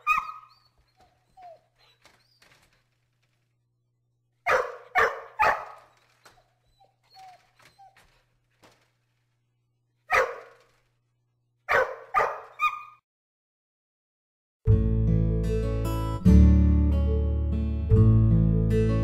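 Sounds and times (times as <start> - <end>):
dog barking: 0.0 - 0.6, 4.4 - 5.9, 10.1 - 10.6, 11.7 - 13.0
dog whimpering: 0.0 - 2.5, 6.6 - 8.1.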